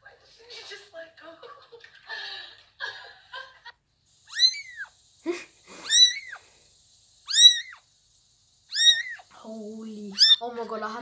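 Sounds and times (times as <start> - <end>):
stifled breathy laughter: 1.6 - 3.8, 5.2 - 5.9
kitten meowing: 4.3 - 4.9, 5.8 - 6.4, 7.3 - 7.8, 8.7 - 9.3, 10.1 - 10.4.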